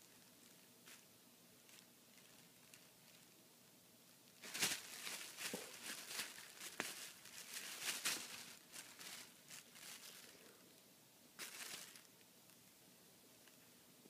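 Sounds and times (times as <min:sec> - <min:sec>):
plastic bag crinkling: 0:01.6 - 0:03.4, 0:04.2 - 0:10.6, 0:11.4 - 0:12.2.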